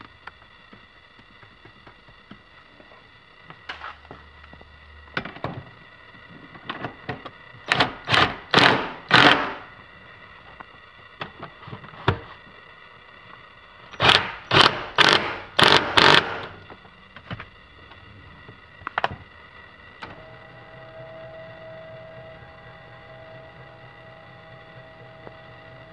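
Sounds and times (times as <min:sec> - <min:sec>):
ratchet wrench ratcheting: 0:13.9 - 0:16.6.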